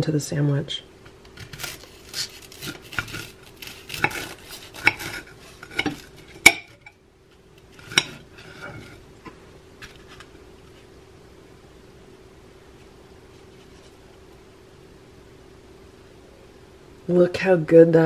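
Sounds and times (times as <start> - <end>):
knife crunching through toast: 1.4 - 6.6.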